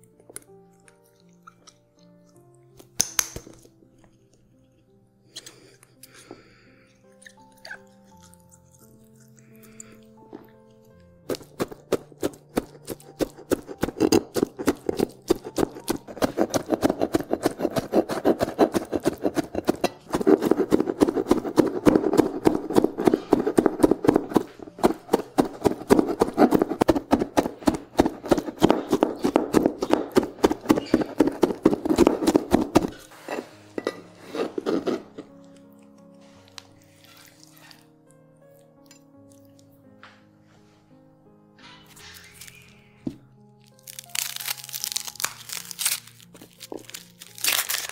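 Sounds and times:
faint background music: 0.0 - 47.9
knife chopping on cutting board: 11.3 - 35.2.

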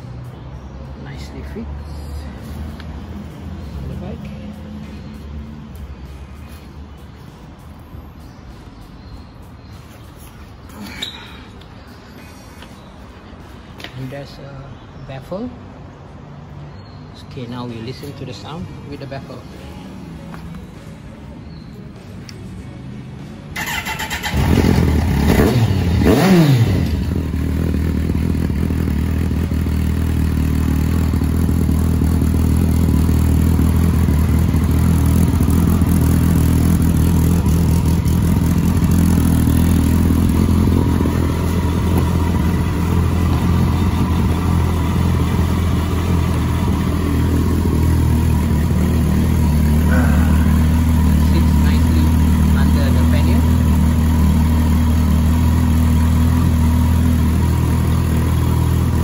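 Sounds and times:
motorcycle engine revving: 23.5 - 59.0
motorcycle engine starting and idling: 23.5 - 59.0.

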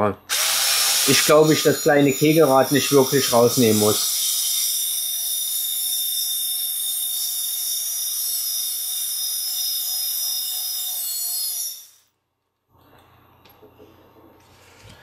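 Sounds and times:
electric screwdriver whining: 0.3 - 4.6.

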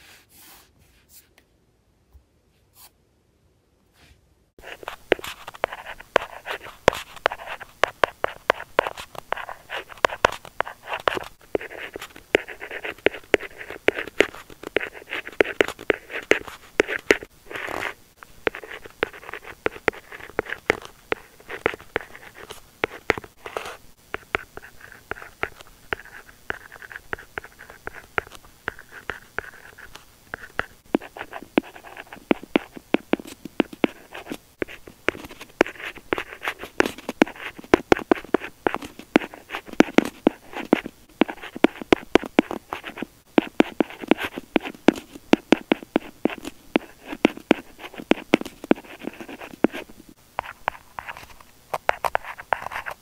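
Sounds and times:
pen scratching on paper: 4.6 - 53.0.

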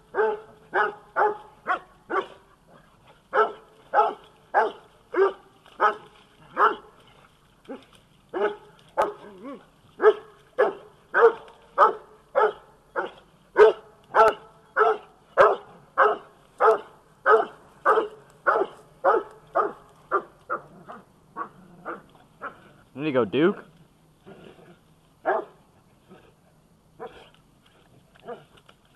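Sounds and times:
hounds barking: 0.0 - 22.7, 25.2 - 25.7.

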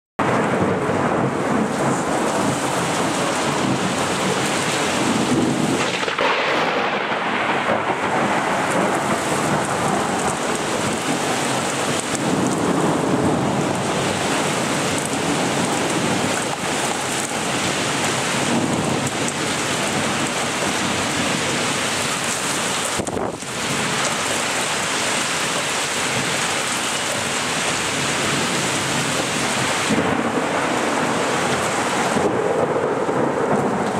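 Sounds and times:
rolls of thunder: 0.2 - 16.4, 29.9 - 33.9
heavy rain pouring: 0.2 - 33.9.

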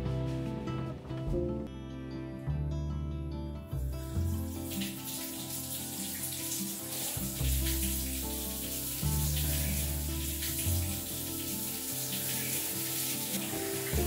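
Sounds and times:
low sustained music notes: 0.0 - 14.0
shower spray running: 4.1 - 14.0.

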